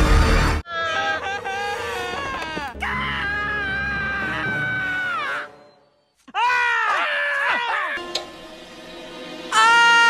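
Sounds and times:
cartoon character screaming: 9.5s - 10.0s.

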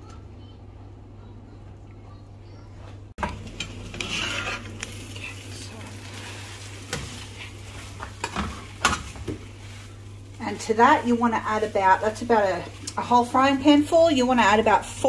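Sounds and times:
dumplings sizzling in hot oil: 3.2s - 15.0s
metal spatula scraping a pan: 3.4s - 5.0s.

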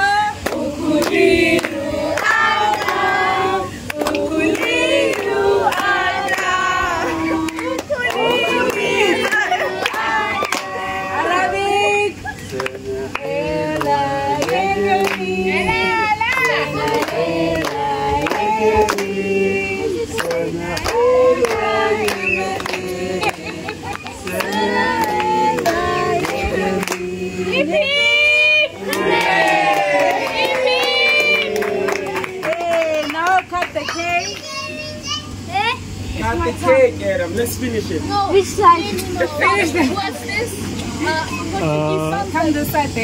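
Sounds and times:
group singing a birthday song: 0.0s - 33.7s, 35.3s - 43.0s
hands clapping: 7.5s - 10.7s, 20.2s - 27.0s, 28.9s - 34.5s.

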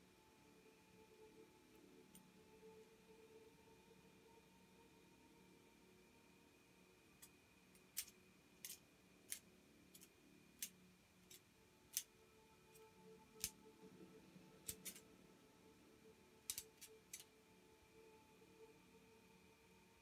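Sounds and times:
faint steady tones: 0.0s - 20.0s
sharp clicks: 7.9s - 12.1s, 14.6s - 15.0s, 16.5s - 17.3s.

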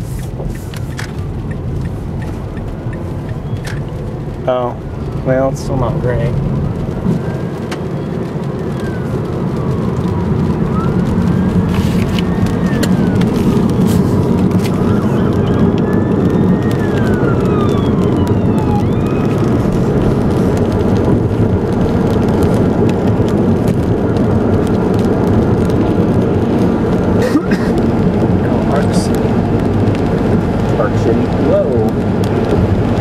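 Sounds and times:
road rumble and tyre noise: 0.0s - 33.0s
sharp ticks: 0.7s - 4.0s
fire truck siren wailing: 6.8s - 33.0s.

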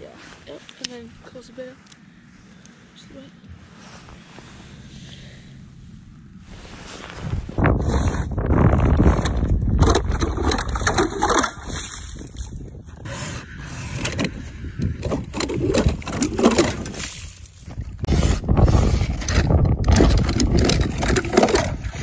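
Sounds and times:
ice auger crunching ice: 7.8s - 22.0s.

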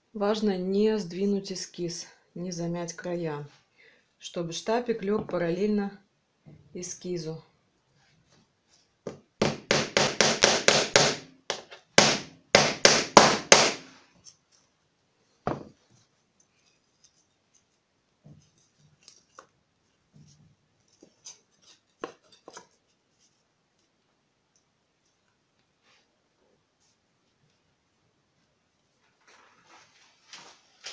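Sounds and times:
hammer striking nails into wood: 9.1s - 13.9s.

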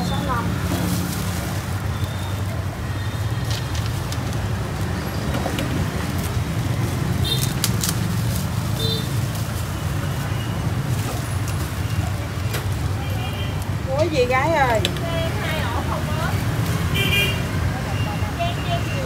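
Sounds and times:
street traffic rumble: 0.0s - 19.0s.

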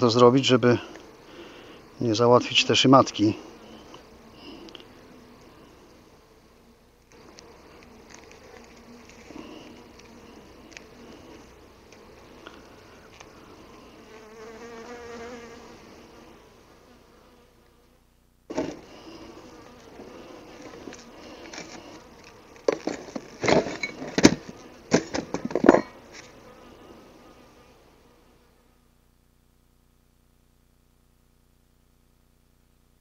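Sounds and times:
honeybees buzzing: 0.0s - 29.0s
sharp knocks and scrapes: 22.6s - 26.4s.

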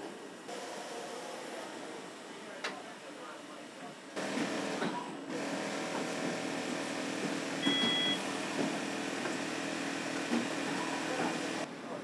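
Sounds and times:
short electronic beep: 7.6s - 8.2s.

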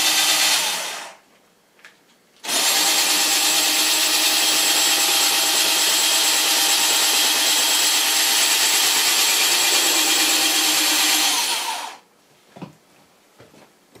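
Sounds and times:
power saw motor running: 0.0s - 1.2s, 2.5s - 12.0s.

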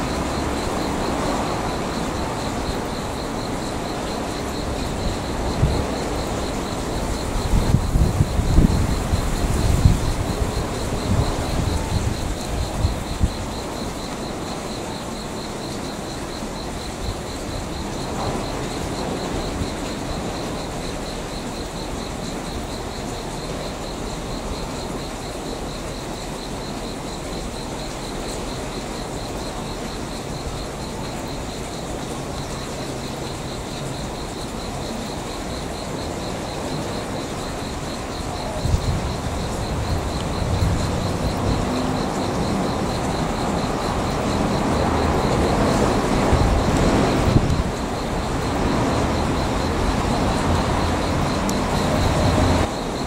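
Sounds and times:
insects chirping trill: 0.0s - 53.0s
train rumbling: 35.8s - 53.0s.

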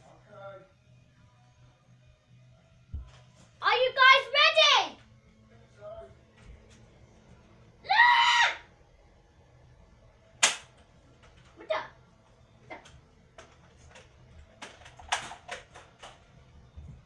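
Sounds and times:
child yelling: 3.6s - 5.0s, 7.9s - 8.6s
toy dart blasters firing: 10.4s - 10.7s.

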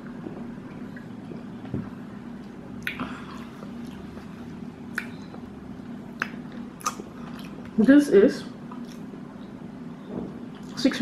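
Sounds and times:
steady low hum: 0.0s - 11.0s
wet mouth sounds: 2.7s - 5.4s, 6.1s - 7.7s.

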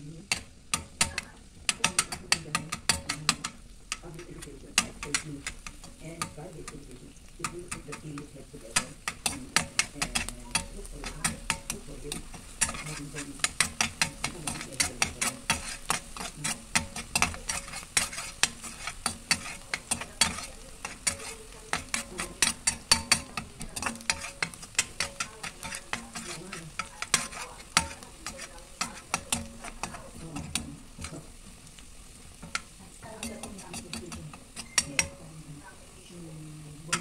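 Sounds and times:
garlic sizzling in oil: 0.0s - 37.0s
metal spatula scraping wok: 0.0s - 37.0s.

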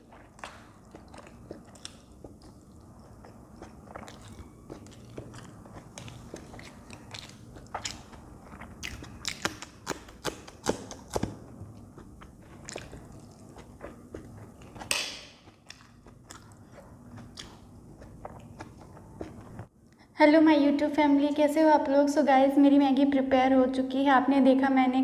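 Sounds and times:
crunching bites: 0.0s - 19.7s
wet chewing: 0.0s - 19.7s.

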